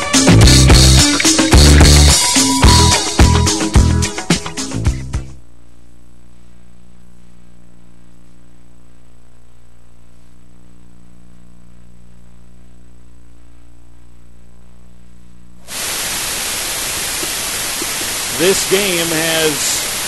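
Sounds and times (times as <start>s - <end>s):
electrical hum: 5.4s - 20.0s
loud even hiss: 15.6s - 20.0s.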